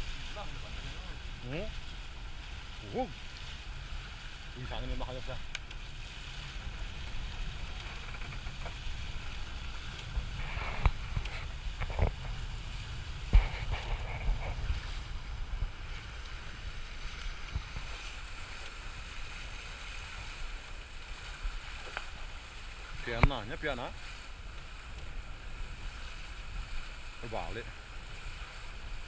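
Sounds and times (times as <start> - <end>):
wind buffeting microphone: 0.0 - 20.6
water splashing: 0.0 - 29.0.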